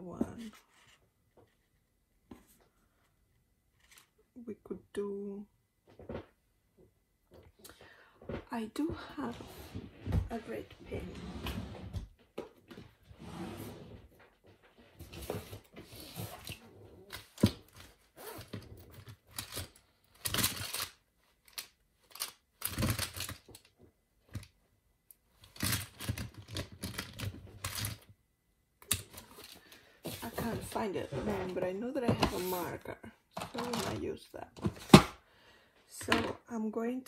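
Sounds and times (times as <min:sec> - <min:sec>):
pens and small objects clattering: 0:15.2 - 0:24.5, 0:25.4 - 0:28.1, 0:33.4 - 0:34.0.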